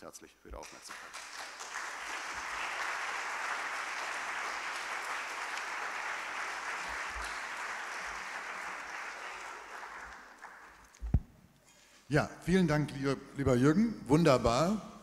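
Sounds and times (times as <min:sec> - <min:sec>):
audience applauding: 0:00.6 - 0:11.0.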